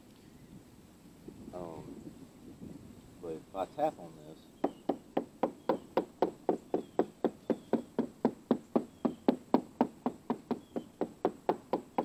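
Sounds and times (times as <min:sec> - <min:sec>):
hammer tapping wooden hull: 0:04.6 - 0:12.0.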